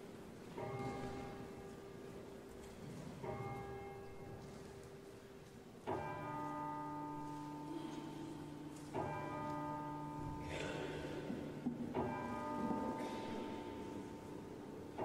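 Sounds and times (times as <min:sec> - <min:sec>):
bells ringing: 0:05.9 - 0:15.0.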